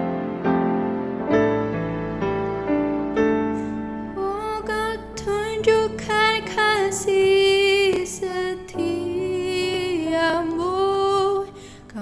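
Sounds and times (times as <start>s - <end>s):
piano and keyboard: 0.0s - 12.0s
woman singing worship song: 4.2s - 12.0s.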